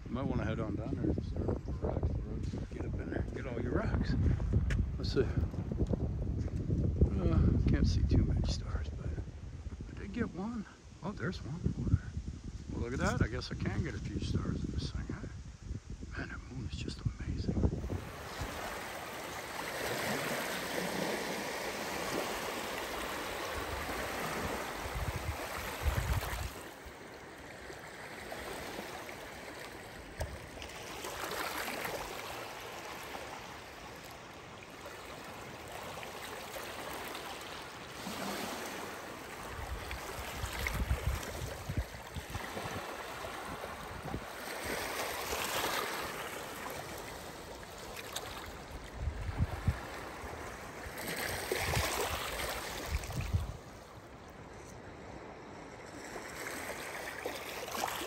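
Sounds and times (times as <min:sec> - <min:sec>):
waves lapping on rocky shore: 0:17.8 - 0:58.0.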